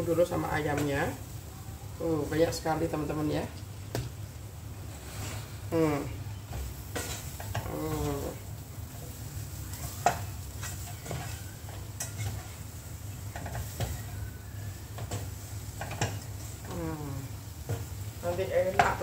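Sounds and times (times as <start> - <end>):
chicken sizzling: 0.0 - 19.0
spatula scraping and knocking wok: 6.4 - 19.0.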